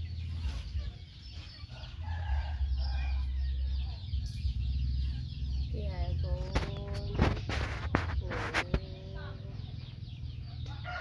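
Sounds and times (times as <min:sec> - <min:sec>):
chickens clucking: 0:00.0 - 0:11.0
rooster crowing: 0:01.7 - 0:03.8, 0:10.7 - 0:11.0.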